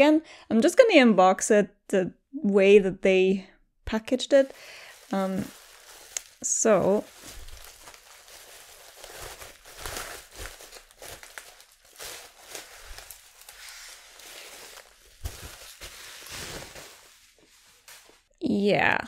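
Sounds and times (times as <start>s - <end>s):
bubble wrap and plastic crinkling: 4.3s - 18.3s.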